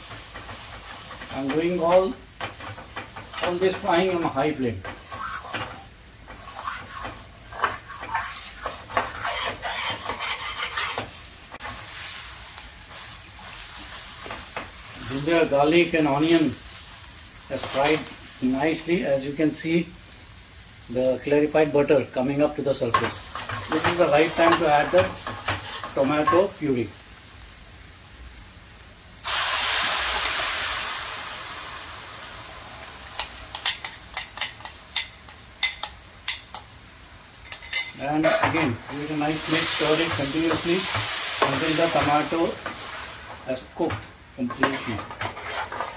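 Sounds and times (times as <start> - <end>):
paste sizzling in oil: 0.0 - 45.9
spoon scraping a metal pan: 4.8 - 11.8, 37.5 - 38.6, 44.4 - 45.9.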